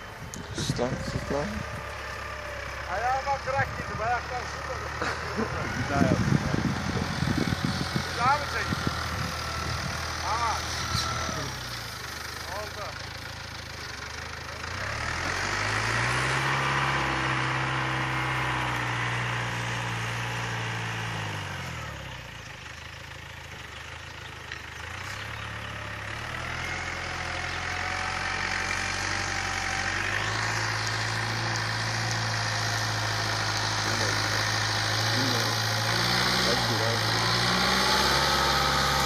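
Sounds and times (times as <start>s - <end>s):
tractor engine under load: 0.0s - 39.0s.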